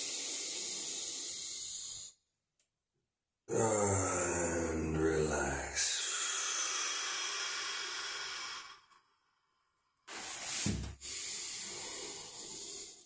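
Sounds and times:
man exhaling: 0.0 - 2.1, 5.9 - 8.9, 10.1 - 13.0
short sharp breath: 10.1 - 13.0.

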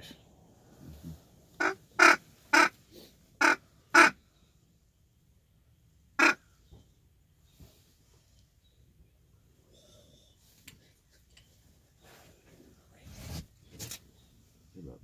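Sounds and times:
duck call quacks: 1.6 - 2.8, 3.4 - 4.2, 6.2 - 6.4.

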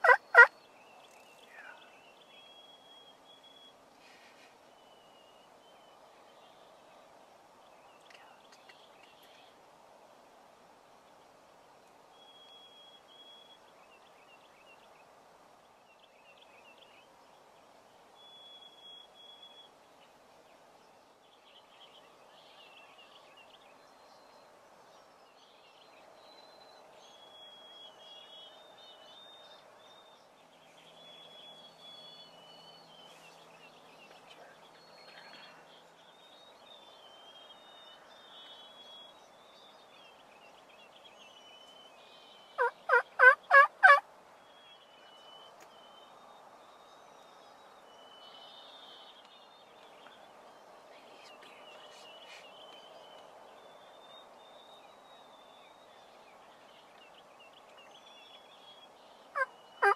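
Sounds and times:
wild turkey gobbling: 0.0 - 0.5, 42.6 - 44.0, 59.4 - 59.9.

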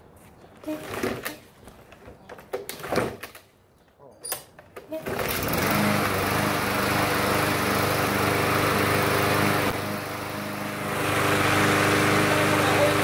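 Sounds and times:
lawn mower engine running: 5.0 - 13.0.

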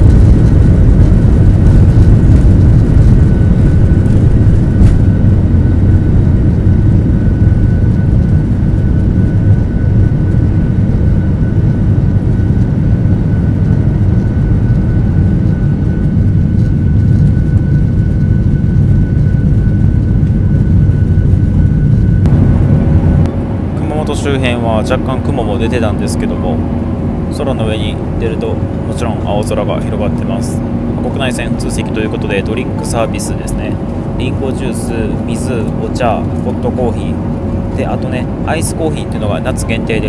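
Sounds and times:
high jet engine whine: 0.0 - 40.0
jet engine low rumble: 0.0 - 40.0.

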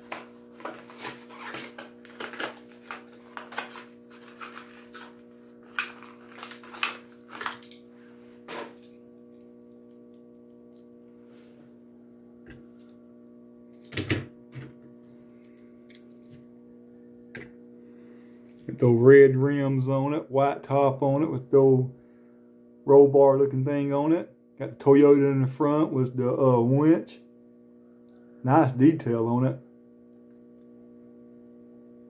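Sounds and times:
plastic blister pack crackling: 0.0 - 7.9
faint steady hum: 0.0 - 32.0.

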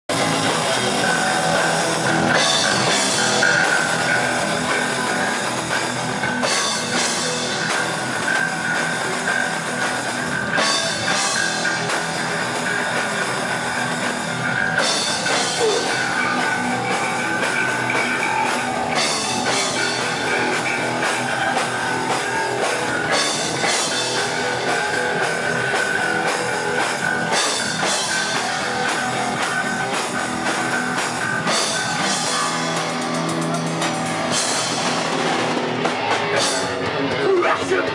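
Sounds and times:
electric guitar: 0.0 - 37.9
drum kit: 0.1 - 37.9.

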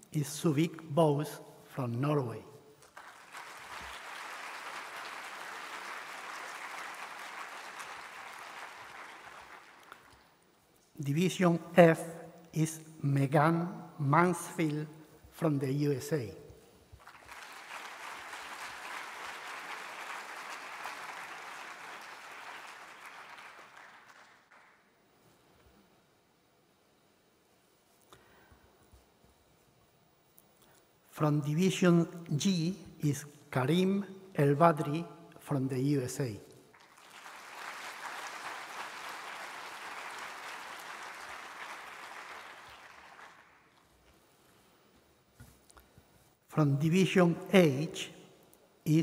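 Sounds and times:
audience applauding: 2.8 - 10.3, 17.0 - 24.9, 36.7 - 43.9.

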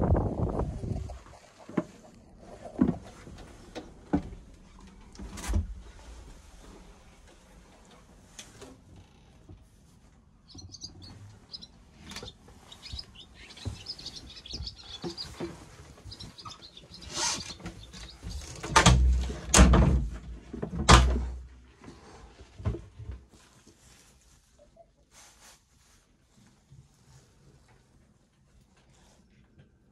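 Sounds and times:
low rumbling bumps: 0.0 - 7.3
small birds chirping: 10.4 - 18.7.

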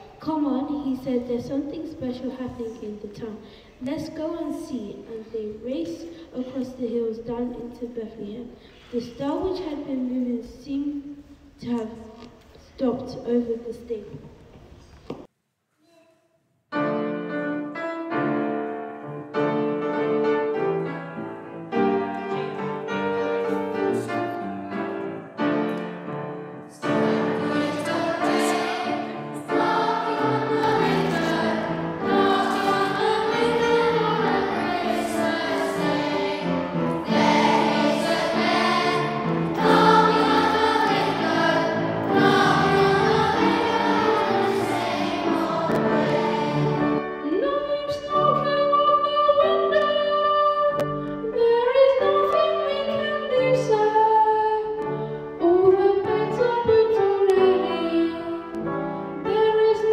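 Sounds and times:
piano: 16.7 - 59.9
children's choir singing: 26.7 - 47.2.

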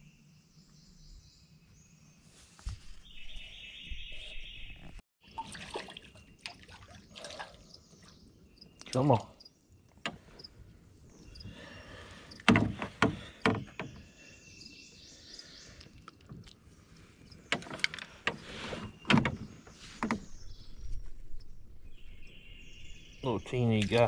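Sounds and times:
knocks and bumps in a small boat: 12.4 - 14.2, 17.4 - 21.0.

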